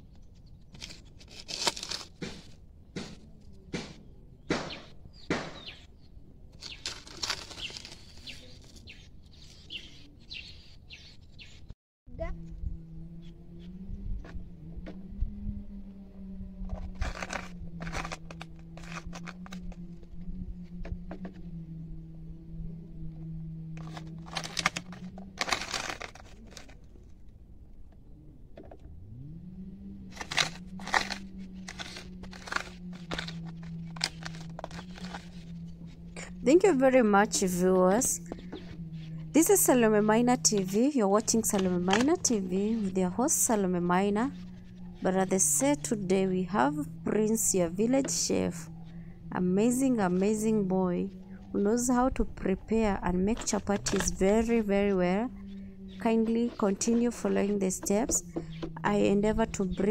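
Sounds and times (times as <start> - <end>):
low motor hum: 0.0 - 59.9
rustling: 0.1 - 2.6, 6.5 - 8.9, 23.7 - 27.3, 30.0 - 36.2
birds chirping: 4.0 - 11.8, 12.4 - 16.4, 27.9 - 59.9.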